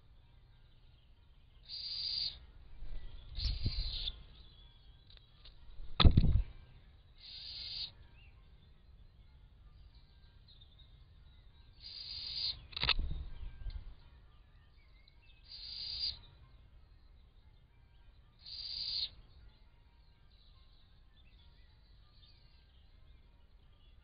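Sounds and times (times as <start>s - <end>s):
owl chick hissing wheezes: 1.7s - 2.4s, 7.2s - 7.9s, 11.8s - 12.6s, 18.4s - 19.1s.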